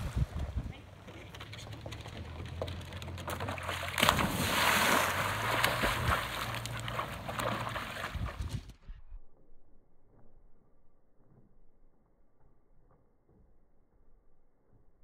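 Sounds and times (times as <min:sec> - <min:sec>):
dog splashing into water: 0:02.4 - 0:08.7
water churning from swimming dog: 0:03.2 - 0:08.5.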